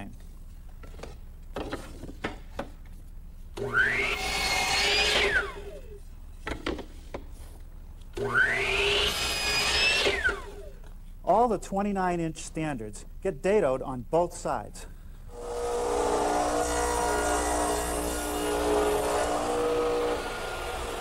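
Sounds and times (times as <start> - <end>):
miter saw cutting wood: 3.6 - 5.9, 8.2 - 10.7, 15.3 - 21.0.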